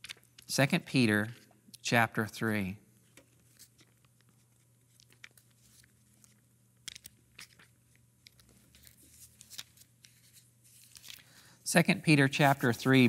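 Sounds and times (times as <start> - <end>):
paper pages rustling: 3.4 - 11.4.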